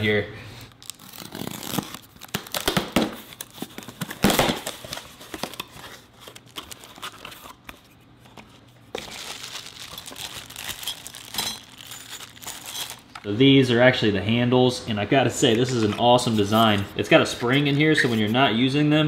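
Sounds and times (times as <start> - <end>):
plastic bags crinkling: 0.8 - 7.6, 8.9 - 13.3
packing tape tearing: 0.8 - 7.7, 9.0 - 13.3.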